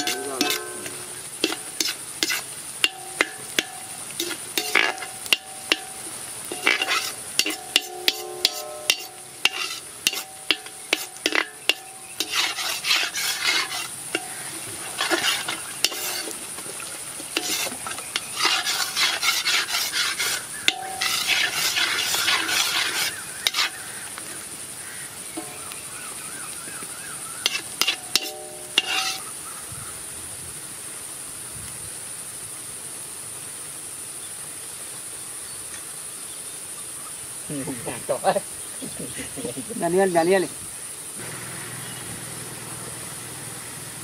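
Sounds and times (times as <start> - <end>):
ladle scraping and clanking pan: 0.0 - 16.5, 17.1 - 23.9, 25.4 - 25.8, 27.4 - 29.3
onions sizzling in hot oil: 0.0 - 44.0.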